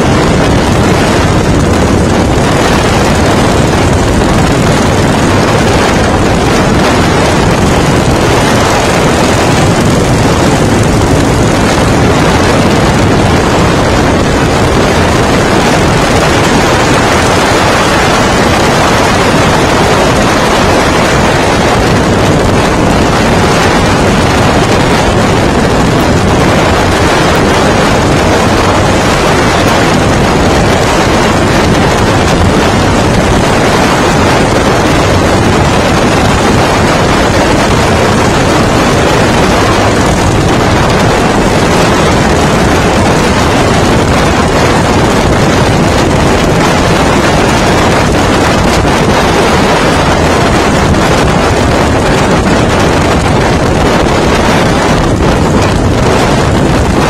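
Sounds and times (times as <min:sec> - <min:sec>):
motorcycle running: 0:00.0 - 0:57.0
road noise: 0:00.0 - 0:57.0
wind noise on microphone: 0:00.0 - 0:57.0.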